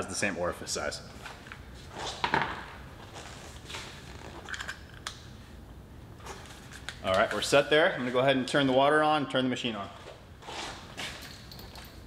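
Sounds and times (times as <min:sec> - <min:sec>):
nozzle tips clicking and rattling: 0:11.1 - 0:12.0.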